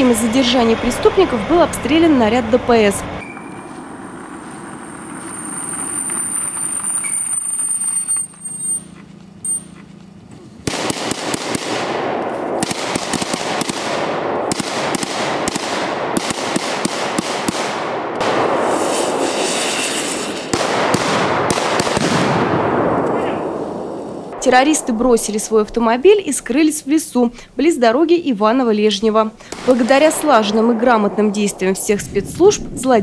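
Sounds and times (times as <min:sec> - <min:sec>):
car running along road: 0:00.0 - 0:10.7
rapid gunfire: 0:10.6 - 0:19.3, 0:20.4 - 0:23.0, 0:29.5 - 0:31.8.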